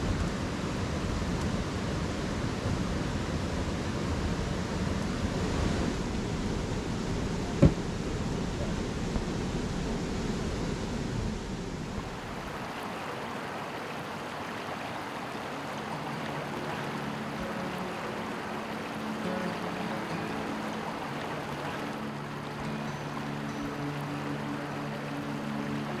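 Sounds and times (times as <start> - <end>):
low rumbly outdoor noise: 0.0 - 26.0
stream running over rocks: 3.1 - 9.5, 11.8 - 26.0.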